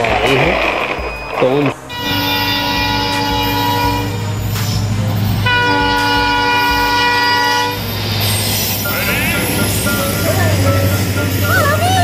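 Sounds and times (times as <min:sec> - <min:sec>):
train low rumble: 0:00.0 - 0:12.0
locomotive horn blasts: 0:01.6 - 0:04.6, 0:05.4 - 0:08.0, 0:08.8 - 0:12.0.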